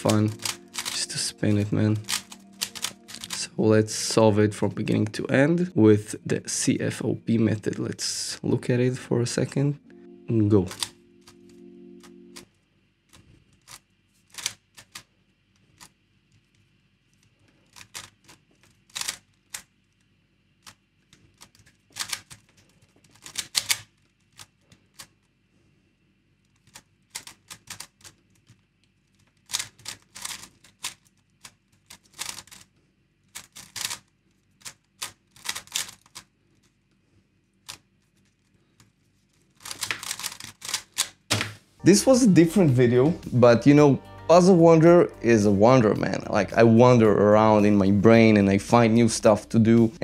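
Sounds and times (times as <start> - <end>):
plastic puzzle cube clicking: 0.0 - 1.2, 2.0 - 3.4, 13.1 - 15.1, 17.7 - 19.7, 20.6 - 25.1, 26.5 - 28.6, 29.2 - 32.7, 33.3 - 36.3, 39.6 - 41.2.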